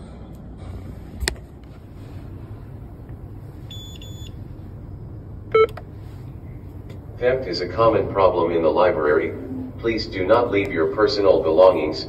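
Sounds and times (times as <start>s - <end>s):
low room hum: 0.0s - 12.0s
short electronic beeps: 3.7s - 4.4s.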